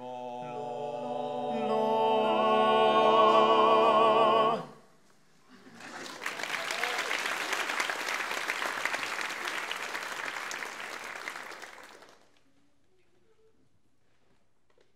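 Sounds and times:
audience applauding: 5.7s - 12.4s.

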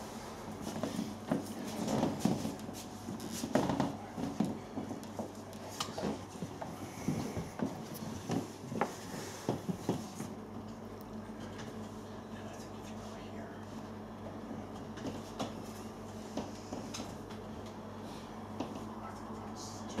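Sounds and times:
faint steady hum: 0.0s - 20.0s.

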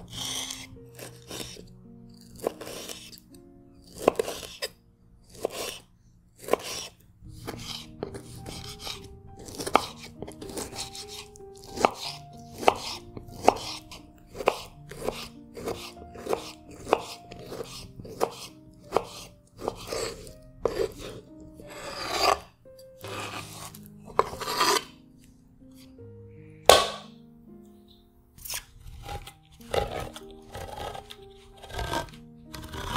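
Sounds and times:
knife scraping food off board: 0.0s - 1.6s, 2.3s - 3.2s, 3.9s - 4.7s, 5.3s - 5.8s, 6.4s - 24.9s, 28.4s - 32.9s
knife chopping on wooden board: 3.9s - 4.7s, 6.4s - 22.4s, 23.0s - 24.8s, 26.7s - 27.1s, 28.4s - 32.9s.

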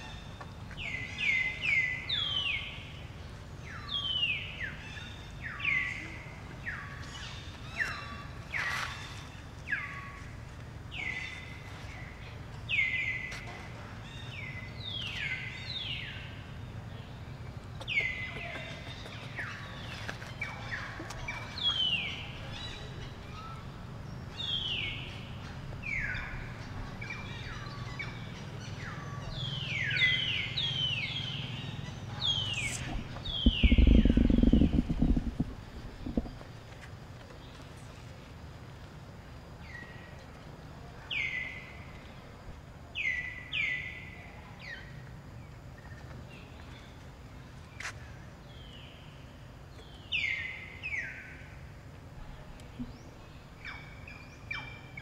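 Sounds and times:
steady low hum: 0.0s - 55.0s
high chirping animal calls: 21.6s - 36.4s.

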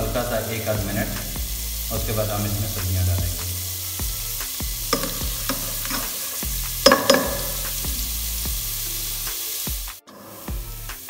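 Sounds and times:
paste sizzling in oil: 0.0s - 11.0s
spoon stirring and knocking pot: 4.9s - 6.2s, 6.8s - 7.7s.

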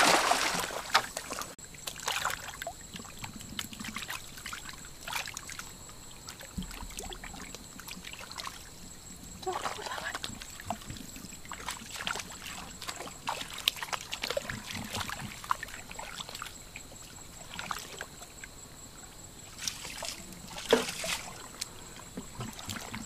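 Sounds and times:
loud water splash: 0.0s - 1.1s
hands splashing in muddy water: 0.0s - 2.5s.

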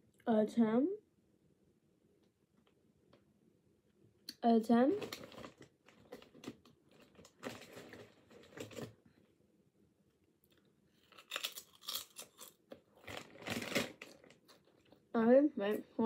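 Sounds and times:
person chewing crisp chips: 10.5s - 15.0s.

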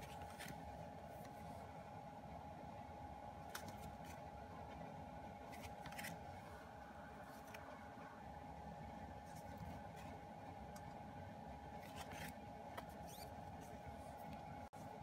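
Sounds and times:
photocards and packaging rustling: 0.0s - 1.6s, 3.4s - 4.8s, 5.4s - 7.9s, 11.8s - 15.0s
faint steady hum: 0.0s - 15.0s.

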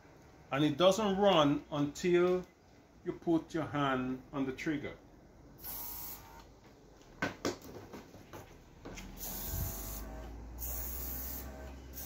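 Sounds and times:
air hissing from nozzle: 5.6s - 6.3s, 9.2s - 12.0s
airbrush compressor humming: 9.2s - 12.0s.

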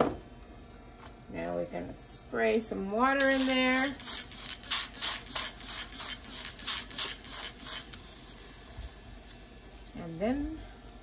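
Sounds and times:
spray bottle hissing squirts: 3.2s - 8.1s.

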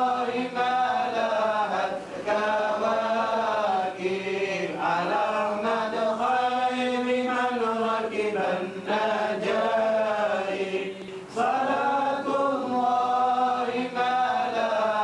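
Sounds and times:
person chanting: 0.0s - 15.0s.

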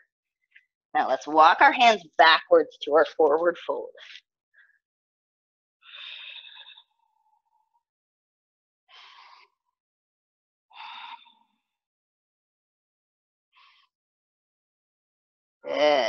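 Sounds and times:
person breathing: 5.9s - 6.9s, 10.8s - 11.5s.

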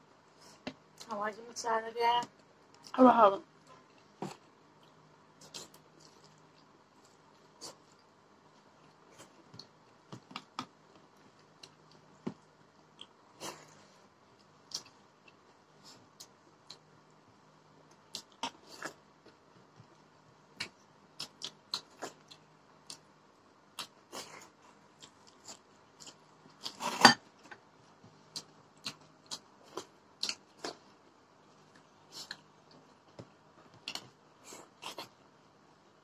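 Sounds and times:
mouths chewing and smacking: 3.7s - 13.8s.

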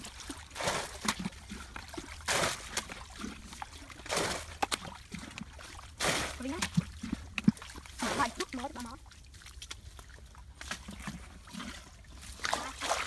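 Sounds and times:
bucket splashing muddy water: 0.0s - 13.0s
water trickling: 0.0s - 13.0s.

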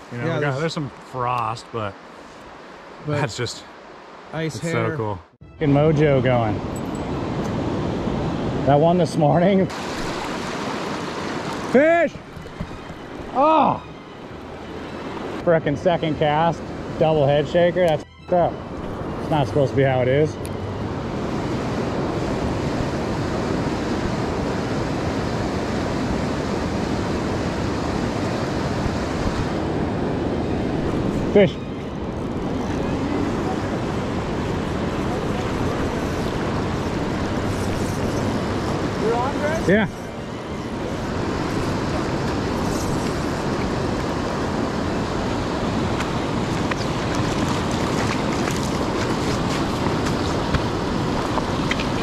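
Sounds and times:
river rushing over rapids: 9.7s - 13.8s, 21.0s - 52.0s
river rushing over rocks: 9.7s - 13.8s.

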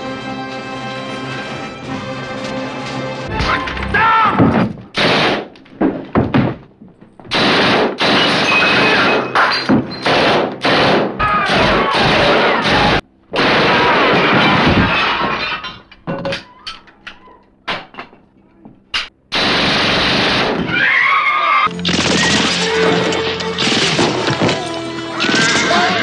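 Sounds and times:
background music: 0.0s - 5.7s, 8.5s - 26.0s.

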